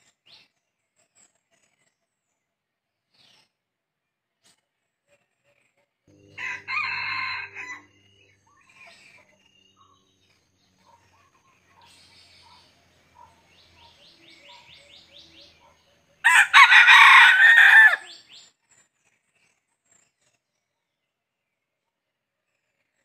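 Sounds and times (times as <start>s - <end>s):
rooster crowing: 6.1s - 8.0s, 16.2s - 18.2s
faint chirps: 6.1s - 16.2s.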